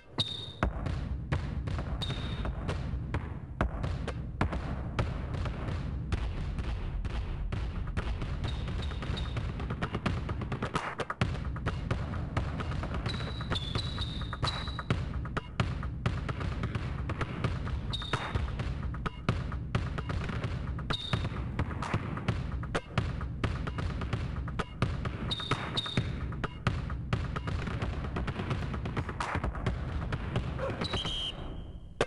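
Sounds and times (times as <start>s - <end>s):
sneaker squeaks: 0.0s - 0.7s, 2.0s - 2.5s, 8.4s - 10.0s, 12.6s - 15.0s, 17.9s - 18.5s, 20.9s - 21.4s, 24.6s - 26.7s, 30.6s - 32.0s
basketball dribbling on hard court: 0.2s - 31.3s.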